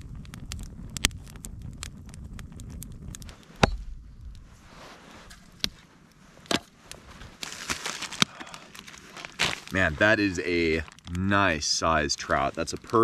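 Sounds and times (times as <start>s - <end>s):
wood campfire crackling: 0.0s - 13.0s
rustling: 3.2s - 13.0s.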